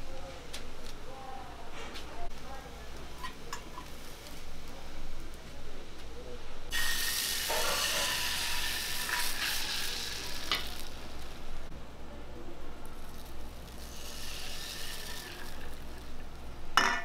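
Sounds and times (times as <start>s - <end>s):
batter sizzling in frying pan: 2.9s - 5.3s, 6.7s - 11.7s, 12.9s - 16.5s.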